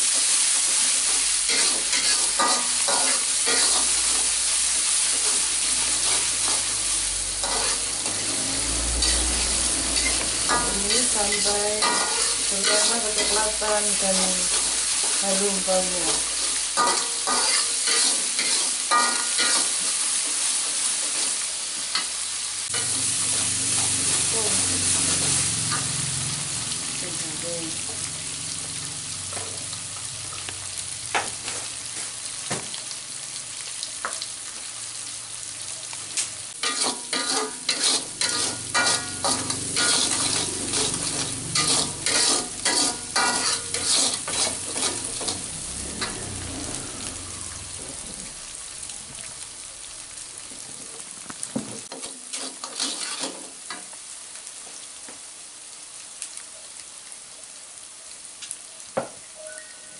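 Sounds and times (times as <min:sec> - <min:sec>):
paste sizzling in oil: 0:00.0 - 0:56.1
metal spatula scraping wok: 0:01.0 - 0:04.4, 0:05.0 - 0:20.0, 0:36.6 - 0:46.5, 0:51.9 - 0:53.8.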